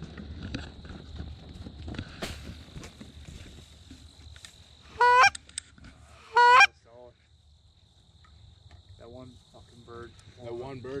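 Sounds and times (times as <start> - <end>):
goose call honking: 5.0 - 5.4, 6.2 - 6.7.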